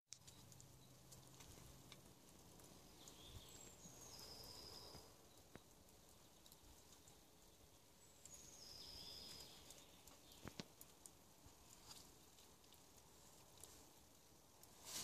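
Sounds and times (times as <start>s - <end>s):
small clicks: 0.1s - 7.6s, 8.2s - 13.8s
distant bird whistles: 4.0s - 5.1s.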